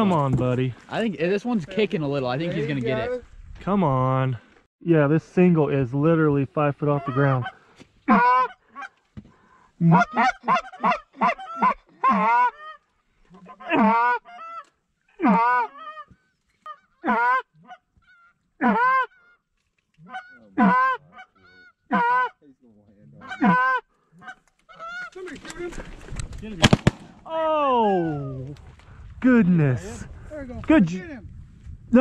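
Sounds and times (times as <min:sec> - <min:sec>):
goose honking: 0:16.7 - 0:22.4, 0:23.1 - 0:25.2.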